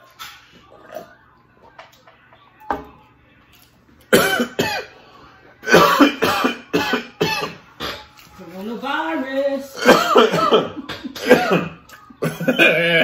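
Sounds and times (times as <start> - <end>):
man coughing: 4.1 - 4.9, 5.6 - 7.6, 9.8 - 13.0.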